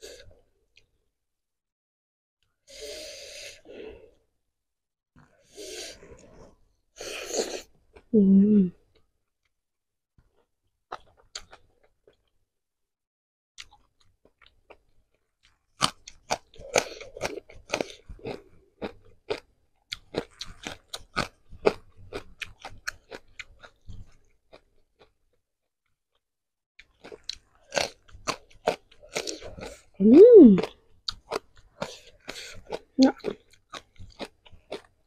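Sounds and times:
person crunching crisp food: 0:15.5 - 0:25.1, 0:26.9 - 0:29.9, 0:30.6 - 0:35.0.

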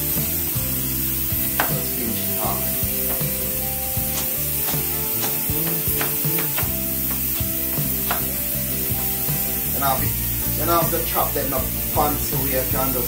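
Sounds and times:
background music with bass line: 0:00.0 - 0:13.0
pressure cooker steam hiss: 0:00.0 - 0:13.0.

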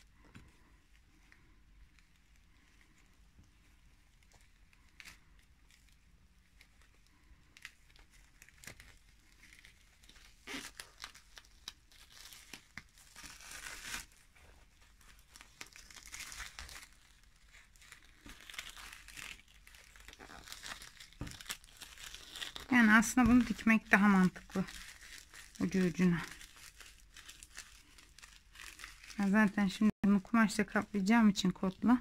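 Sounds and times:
adhesive tape tearing and crinkling: 0:07.6 - 0:29.5.

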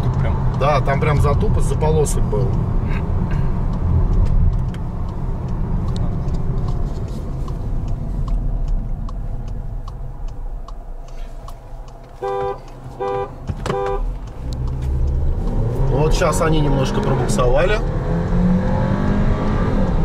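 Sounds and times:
light ticking: 0:00.0 - 0:18.4
car road and engine noise: 0:00.0 - 0:20.0
car horn short beeps: 0:12.2 - 0:14.2.

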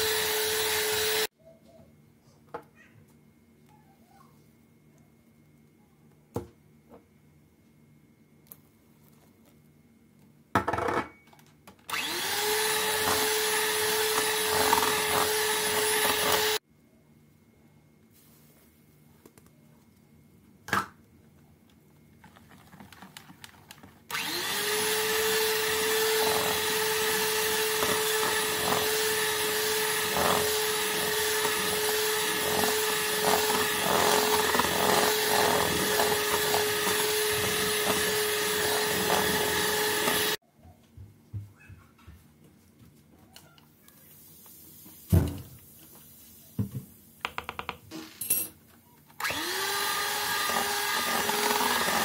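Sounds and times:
electric hand mixer whine: 0:00.0 - 0:01.3, 0:11.9 - 0:16.6, 0:24.1 - 0:40.4, 0:49.2 - 0:52.0.

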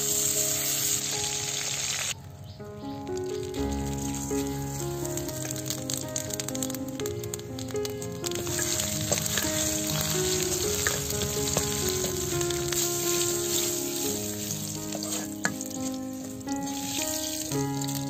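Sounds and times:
spices sizzling in hot oil: 0:00.0 - 0:02.2, 0:02.9 - 0:18.0
background music with held notes: 0:00.0 - 0:18.0
metal ladle stirring: 0:08.2 - 0:18.0.

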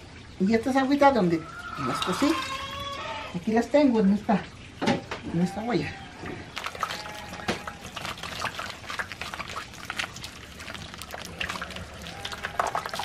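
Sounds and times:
wet squelching of pulp: 0:00.6 - 0:03.4, 0:05.4 - 0:13.0
juice dripping into pot: 0:01.6 - 0:03.0, 0:06.2 - 0:13.0.

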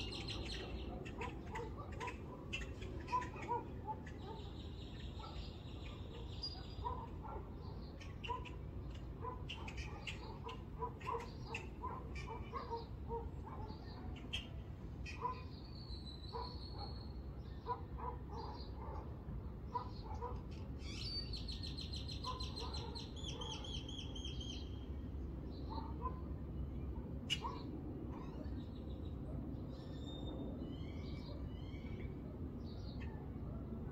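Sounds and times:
small birds chirping: 0:00.0 - 0:26.1.

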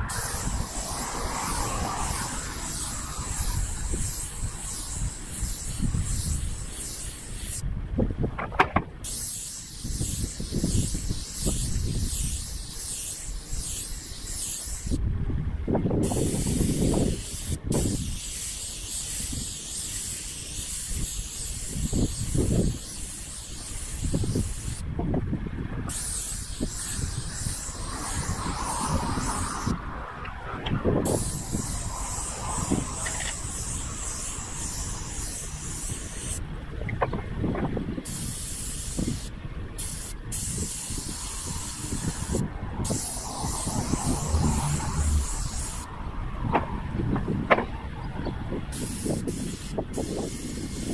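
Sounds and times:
paint spray gun hissing: 0:00.1 - 0:07.6, 0:09.0 - 0:15.0, 0:16.0 - 0:24.8, 0:25.9 - 0:29.8, 0:31.1 - 0:36.4, 0:38.0 - 0:45.9, 0:48.7 - 0:50.9.

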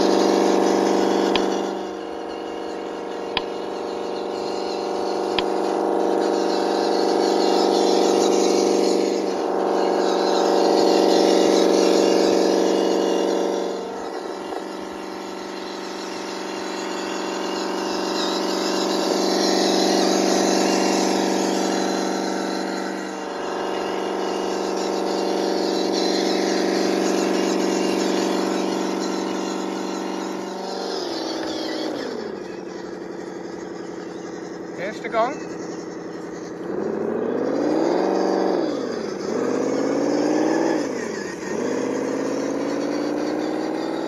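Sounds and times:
simulated engine drone from speaker: 0:00.0 - 0:44.0.

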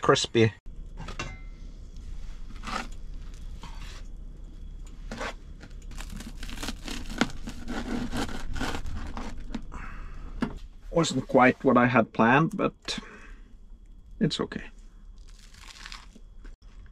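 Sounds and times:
knife crunching through toast: 0:05.1 - 0:09.7, 0:15.2 - 0:16.2.

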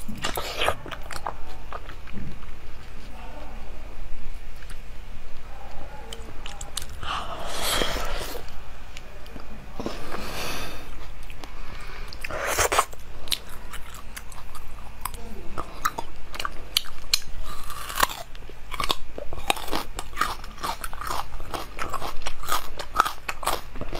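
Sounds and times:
crunchy food biting and chewing: 0:00.0 - 0:03.0, 0:12.1 - 0:23.9.

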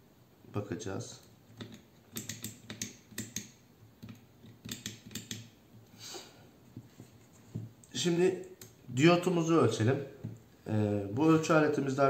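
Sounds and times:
probe tips clicking on plastic: 0:01.5 - 0:05.6.

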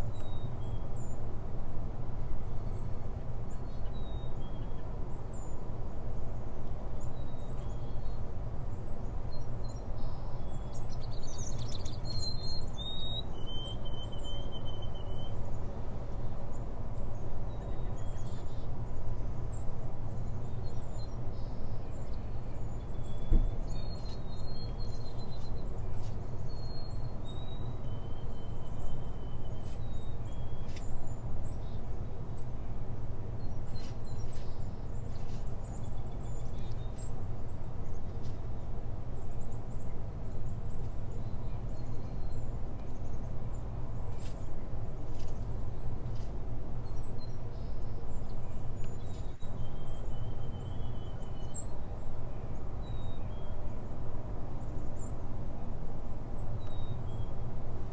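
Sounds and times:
small birds chirping: 0:08.8 - 0:15.8, 0:17.2 - 0:32.7, 0:33.3 - 0:53.8.

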